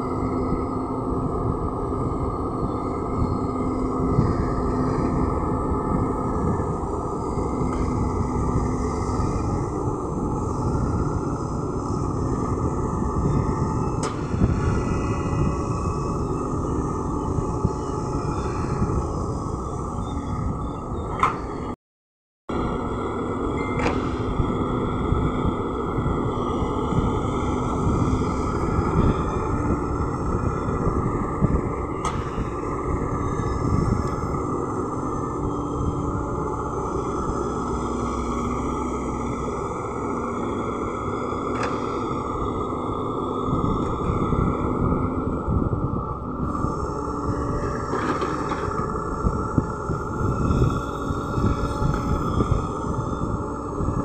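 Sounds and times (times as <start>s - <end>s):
excavator diesel engine running: 0.0s - 21.8s, 22.5s - 54.0s
faint steady hum: 0.0s - 21.8s, 22.5s - 54.0s.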